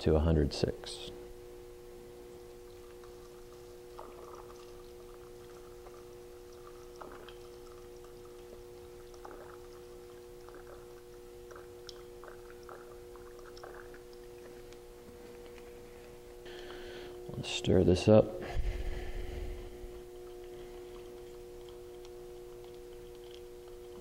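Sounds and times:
faint hum: 0.0s - 24.0s
liquid trickling and splashing: 2.6s - 14.7s.

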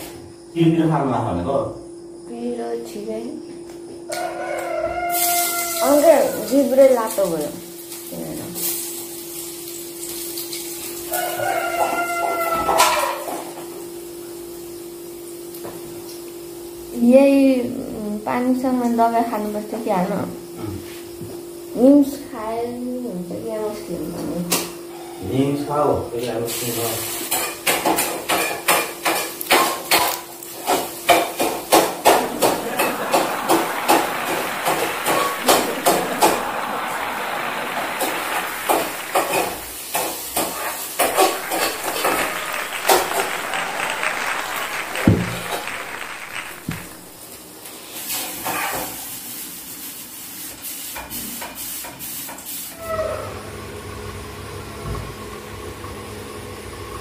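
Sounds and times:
soup sizzling in pan: 5.0s - 17.1s, 26.5s - 52.8s
utensils clinking: 27.3s - 47.1s.

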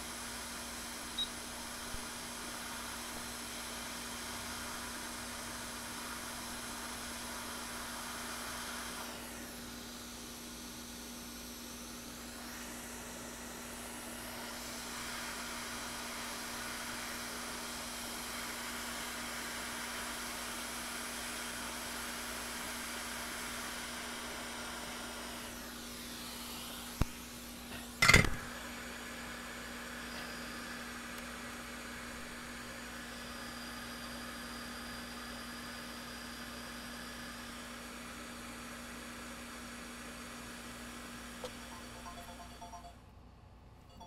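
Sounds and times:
hot-air station hissing: 0.0s - 36.2s.

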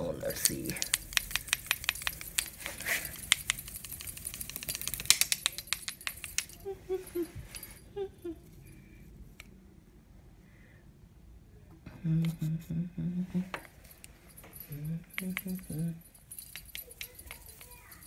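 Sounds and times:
tinsel toys clicking and jingling on stone: 0.2s - 8.7s, 13.6s - 18.0s.

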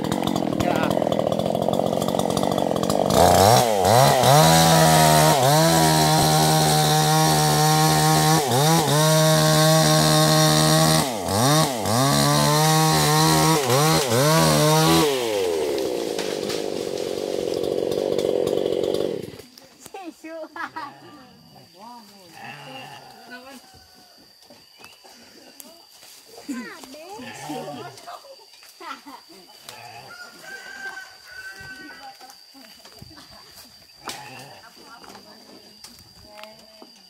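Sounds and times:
chainsaw cutting wood: 0.0s - 19.5s.

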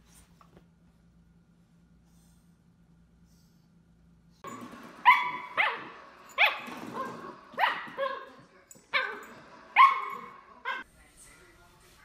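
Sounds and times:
puppy barking: 5.0s - 10.8s.

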